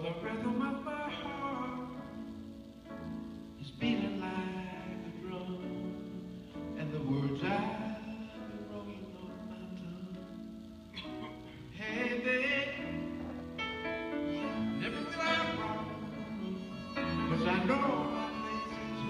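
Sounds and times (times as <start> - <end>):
piano: 0.0 - 19.0
harmonica solo: 14.2 - 19.0.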